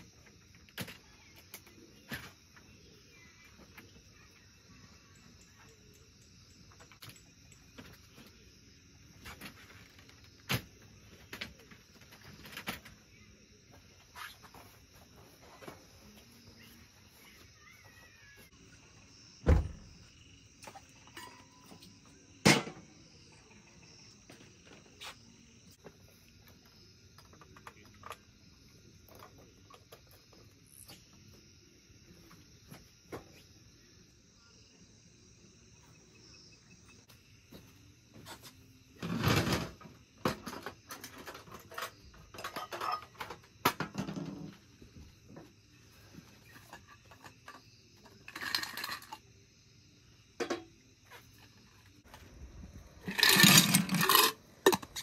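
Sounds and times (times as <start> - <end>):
night insects chorus: 0.0 - 55.0
camping gear clicks and knocks: 53.1 - 55.0.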